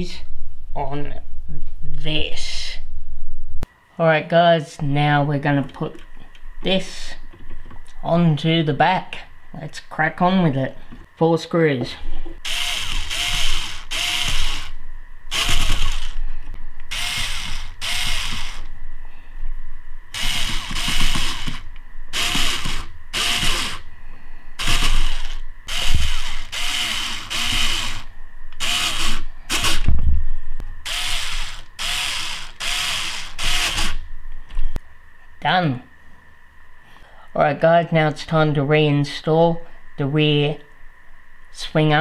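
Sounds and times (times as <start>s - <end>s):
cordless screwdriver motor whine: 12.4s - 16.2s, 16.9s - 18.7s, 20.1s - 23.9s, 24.6s - 29.9s, 30.8s - 34.0s.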